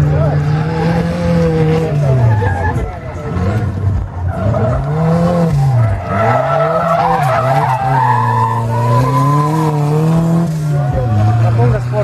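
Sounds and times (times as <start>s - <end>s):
race buggy engine revving: 0.0s - 12.0s
tyres squealing on tarmac: 5.6s - 10.0s.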